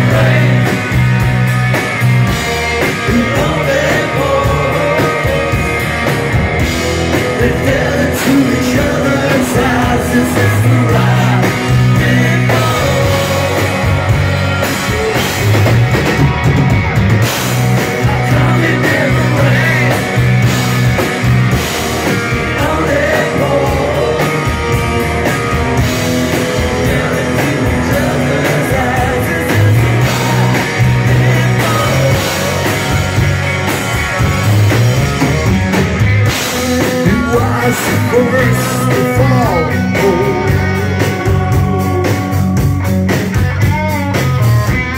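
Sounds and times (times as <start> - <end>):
person singing: 0.0 - 1.0, 3.0 - 5.8, 7.2 - 14.1, 18.0 - 20.3, 22.4 - 25.3, 26.6 - 33.0, 36.8 - 42.3
rock band playing live: 0.0 - 44.9.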